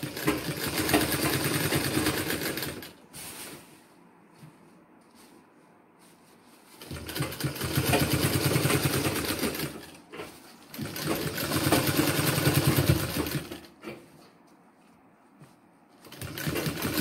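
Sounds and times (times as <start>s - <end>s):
sewing machine stitching: 0.0s - 3.0s, 6.7s - 14.0s, 16.0s - 17.0s.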